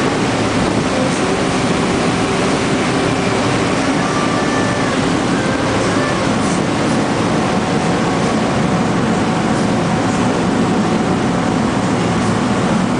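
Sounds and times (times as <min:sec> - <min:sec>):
boat engine drone: 0:00.0 - 0:12.9
water rushing from wake: 0:00.0 - 0:12.9.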